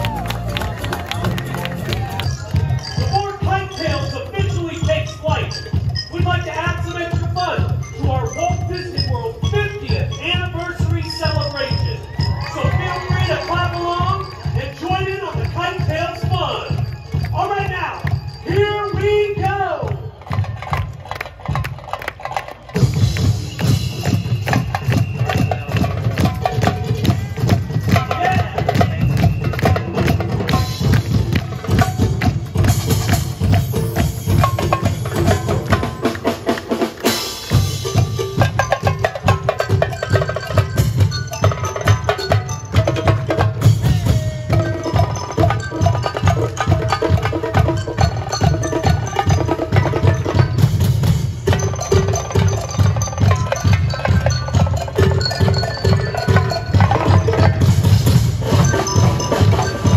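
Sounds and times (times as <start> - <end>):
fast percussive show music: 0.0 - 59.9.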